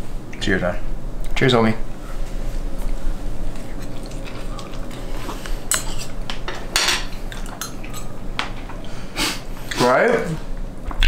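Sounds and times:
metal forks clinking on a plate: 5.7s - 8.1s.

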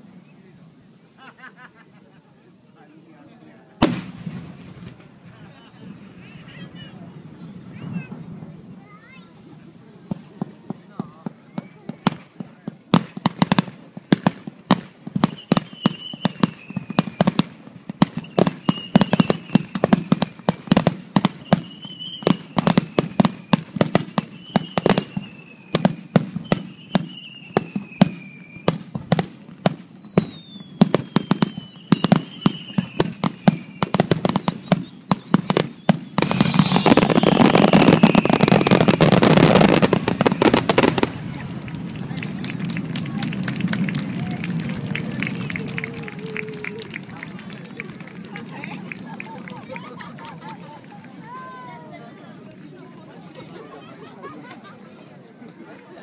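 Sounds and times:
falling firework whistle: 15.2s - 47.8s.

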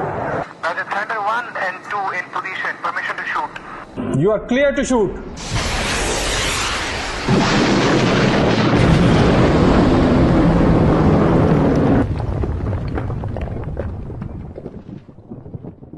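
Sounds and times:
missile launch rushing: 5.2s - 12.9s.

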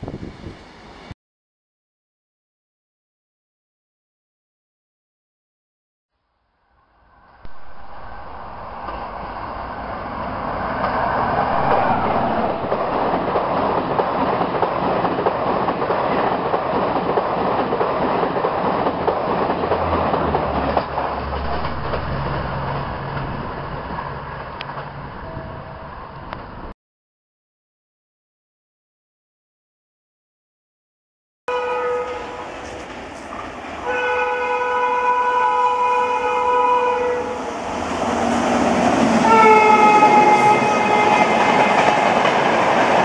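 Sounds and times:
passenger train passing at speed: 0.0s - 1.2s, 6.7s - 26.7s, 31.5s - 43.0s.

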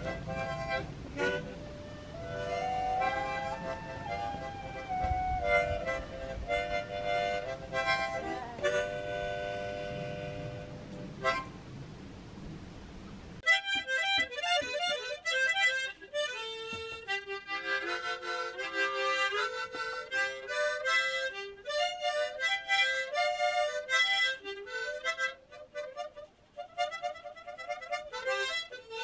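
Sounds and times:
lively harmonica music: 0.0s - 11.5s, 13.4s - 29.0s
faint rushing hiss: 0.0s - 13.4s.

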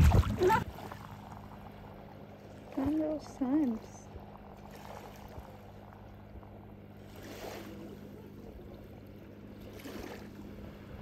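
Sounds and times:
low steady hum: 0.0s - 11.0s
wind: 0.0s - 11.0s
sea surf: 6.8s - 11.0s.

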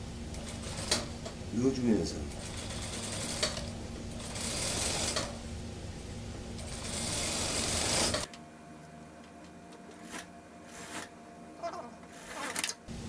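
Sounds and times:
sewing machine running: 0.4s - 1.2s, 2.3s - 5.4s, 6.6s - 8.3s.

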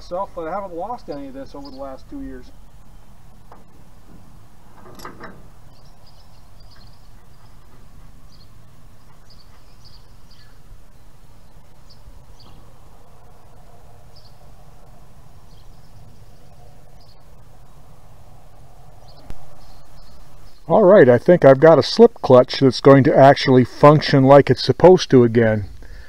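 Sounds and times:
steady low rumble: 0.0s - 21.3s
faint bird chirps: 5.7s - 12.7s.

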